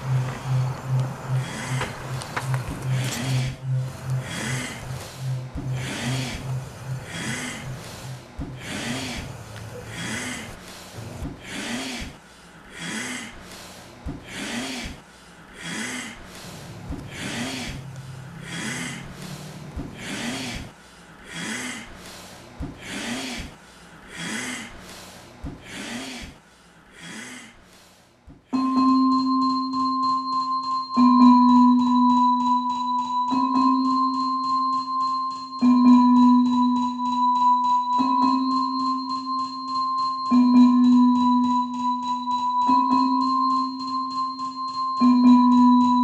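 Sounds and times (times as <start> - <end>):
held keyboard tones: 0.0 - 8.6
person breathing heavily with groans: 0.0 - 28.2.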